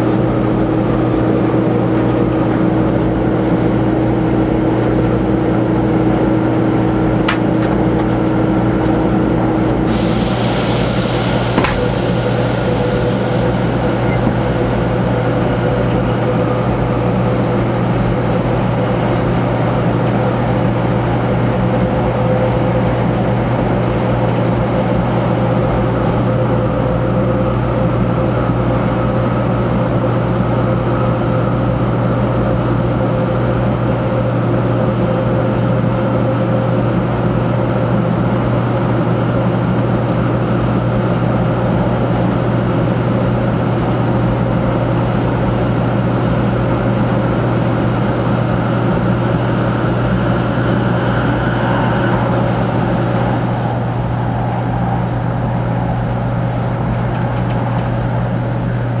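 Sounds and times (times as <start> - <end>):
constant hum: 0.0 - 59.0
train rushing rumble in tunnel: 0.0 - 59.0.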